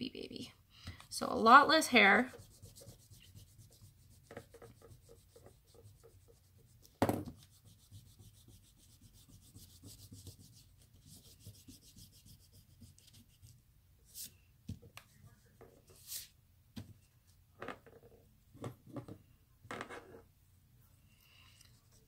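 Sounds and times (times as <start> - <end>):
eraser rubbing on paper: 2.2 - 14.3
thump: 7.0 - 7.4.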